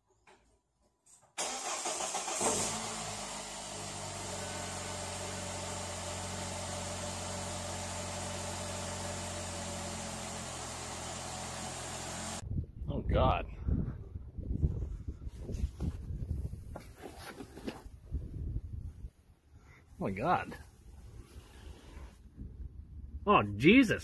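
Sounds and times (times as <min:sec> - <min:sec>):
car engine starting and idling: 0:01.4 - 0:12.4.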